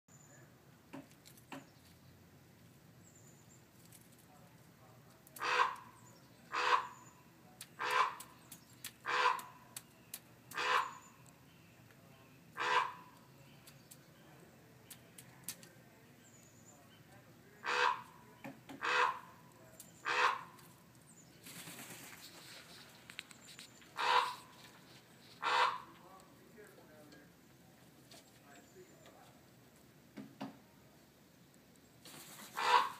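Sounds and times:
magpie calling: 5.4s - 9.7s, 10.5s - 11.2s, 12.6s - 13.2s, 17.6s - 19.4s, 20.0s - 20.6s, 23.9s - 24.6s, 25.4s - 26.0s, 32.6s - 32.9s.

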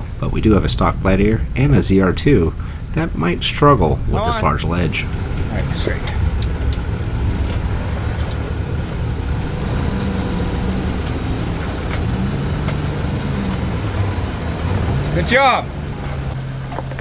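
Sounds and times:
off-road vehicle engine low revs: 4.6s - 17.0s.

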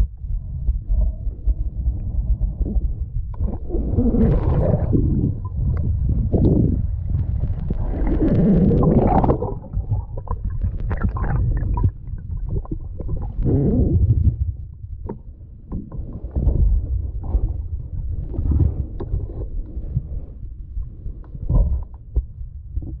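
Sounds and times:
underwater rumble of moving water: 0.0s - 23.0s
sharp underwater clicks: 1.0s - 14.4s
bubbles churning: 3.4s - 14.6s.

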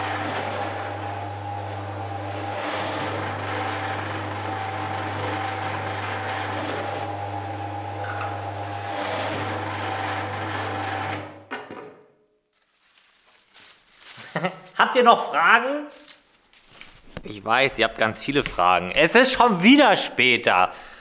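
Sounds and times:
planer humming and whining: 0.0s - 11.4s.

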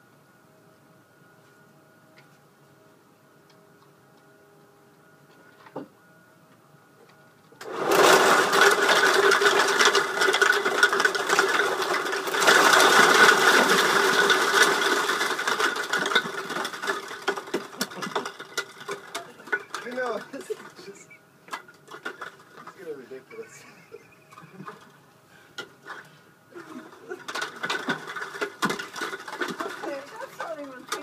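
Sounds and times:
plastic bottles clattering: 7.6s - 23.6s, 25.8s - 31.0s.

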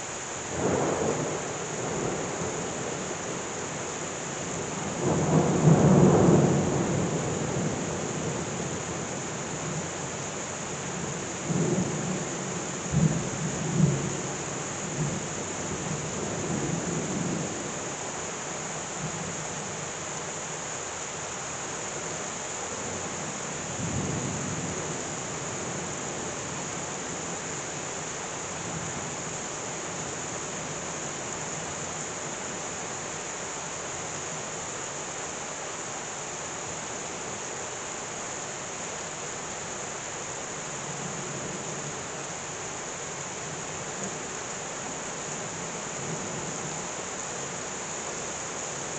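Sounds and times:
heavy rain pouring: 0.0s - 48.9s.

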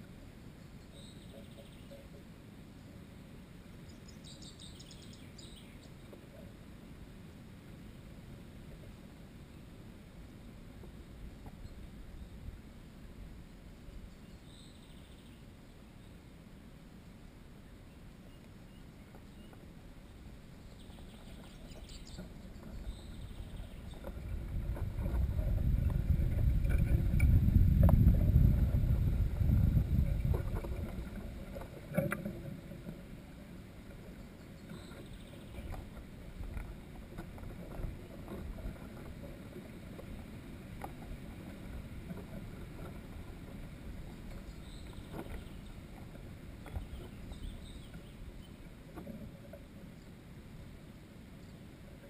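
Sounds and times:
low rumble: 22.5s - 31.6s.

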